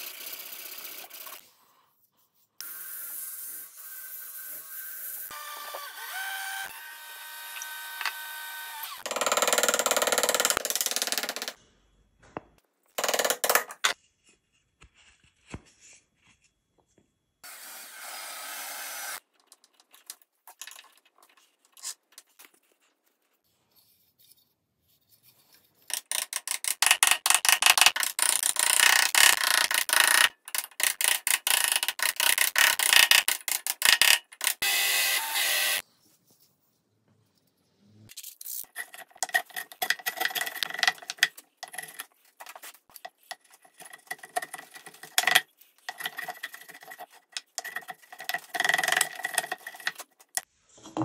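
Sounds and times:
drill press boring into wood: 0:33.8 - 0:35.8.

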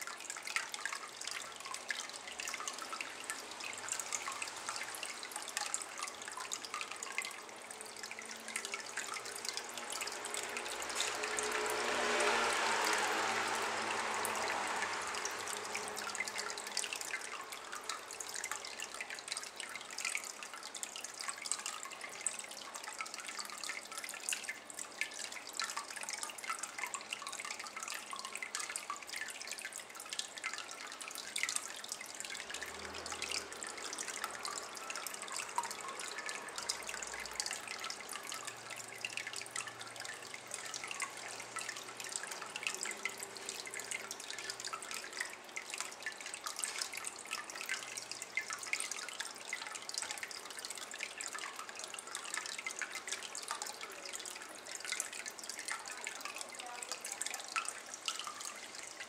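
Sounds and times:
water trickling into basin: 0:00.0 - 0:59.0.

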